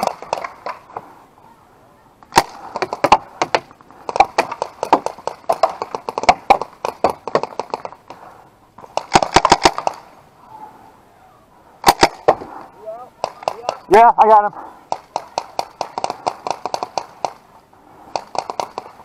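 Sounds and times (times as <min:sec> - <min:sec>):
paintball markers firing: 0:00.0 - 0:00.8, 0:02.3 - 0:08.2, 0:08.8 - 0:10.1, 0:13.2 - 0:14.0, 0:14.9 - 0:17.4, 0:18.1 - 0:19.0.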